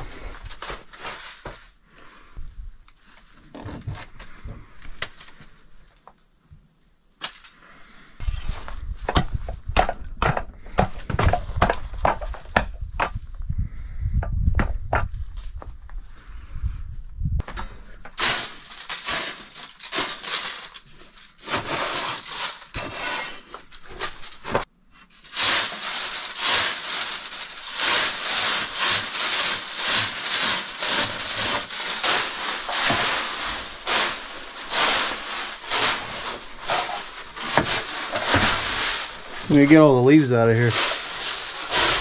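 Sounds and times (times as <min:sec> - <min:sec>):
rough scraping and brushing: 0:00.0 - 0:02.4, 0:07.8 - 0:13.1, 0:17.4 - 0:42.0.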